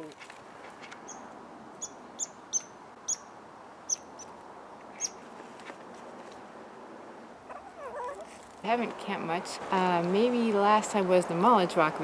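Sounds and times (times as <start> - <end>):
squirrel chirping: 1.0 - 3.3, 3.9 - 4.3, 5.0 - 5.2.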